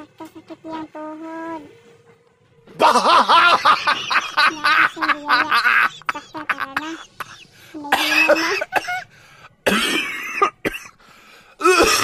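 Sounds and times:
person coughing: 0:05.9 - 0:11.0, 0:11.6 - 0:12.0.

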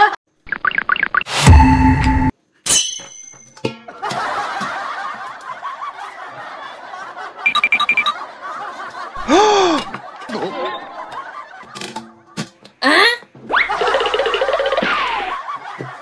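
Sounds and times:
canned laughter: 0:03.9 - 0:11.8.

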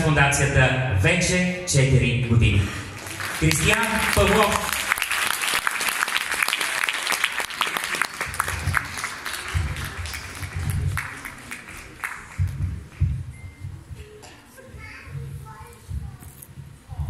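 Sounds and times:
audience applauding: 0:02.8 - 0:13.4
low bass thuds: 0:08.2 - 0:14.2, 0:14.8 - 0:17.0.

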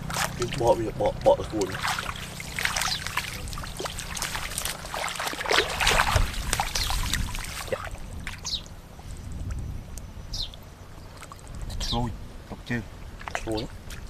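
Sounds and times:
shallow water splashing: 0:00.0 - 0:09.2, 0:12.9 - 0:14.0
steady low hum: 0:00.0 - 0:14.0.

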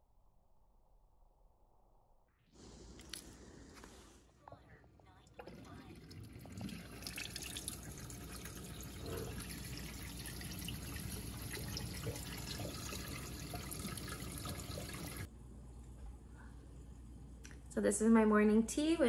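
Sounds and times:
water pouring into a steel saucepan: 0:05.4 - 0:15.3.

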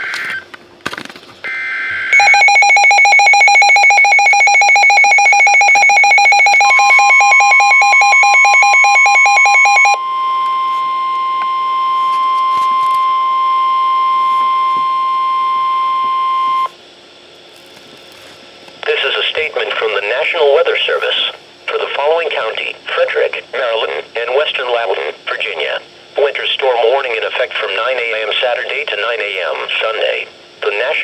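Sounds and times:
steady warning alarm tone: 0:01.5 - 0:16.7
rapid pulsing alarm beeps: 0:01.6 - 0:16.7
data burst tones: 0:02.1 - 0:10.0.

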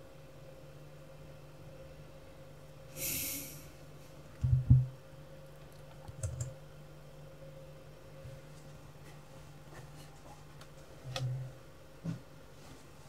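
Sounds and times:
faint electrical hum: 0:00.0 - 0:13.0
short hiss: 0:02.9 - 0:03.8.

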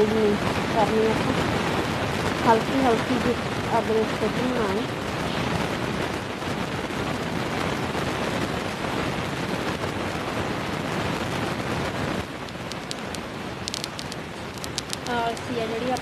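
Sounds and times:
seeds popping: 0:12.4 - 0:16.0.

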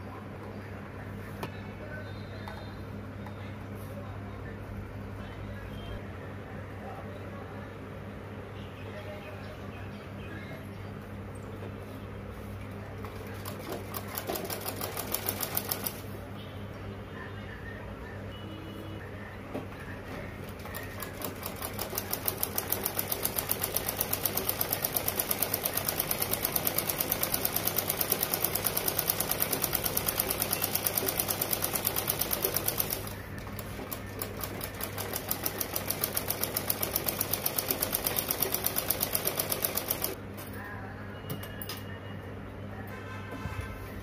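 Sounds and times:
sewing machine stitching: 0:13.4 - 0:16.0, 0:20.6 - 0:33.1, 0:33.8 - 0:40.2.

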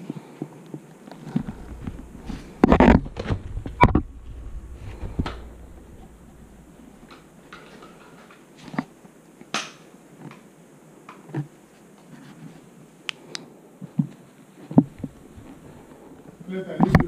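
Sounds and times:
footsteps: 0:01.2 - 0:08.9, 0:13.8 - 0:16.4.

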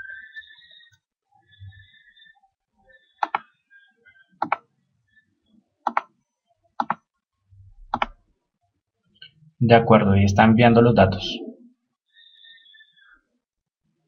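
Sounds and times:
computer mouse clicking: 0:03.2 - 0:03.5, 0:04.4 - 0:04.7, 0:05.8 - 0:06.1, 0:06.8 - 0:07.1, 0:07.9 - 0:08.2.

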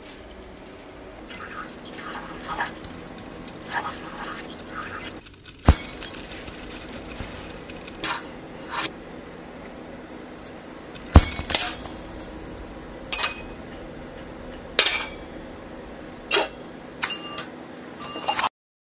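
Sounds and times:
faint steady background noise: 0:00.0 - 0:18.5
glass clinks: 0:11.0 - 0:13.7, 0:14.8 - 0:15.2, 0:17.0 - 0:17.5.

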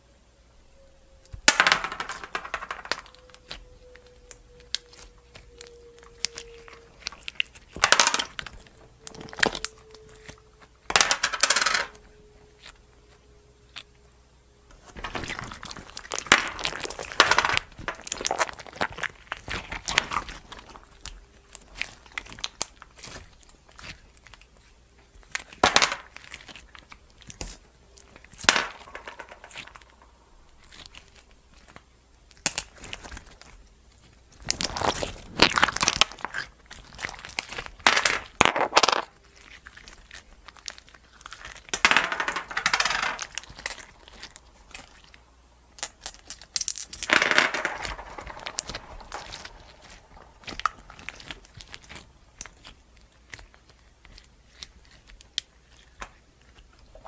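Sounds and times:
slime squishing and popping: 0:15.2 - 0:28.5, 0:30.6 - 0:38.4, 0:48.5 - 0:56.7.

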